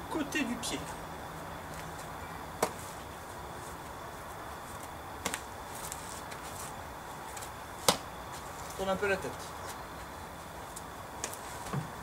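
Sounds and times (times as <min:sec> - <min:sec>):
outdoor background hiss: 0:00.0 - 0:12.0
hand slapping a sneaker: 0:07.8 - 0:08.1.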